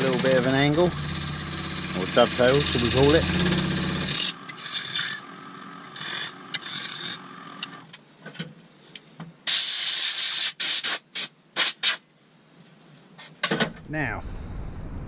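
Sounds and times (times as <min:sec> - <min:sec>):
lathe tool cutting wood: 0:00.0 - 0:07.8
loud hissing bursts: 0:09.5 - 0:12.0.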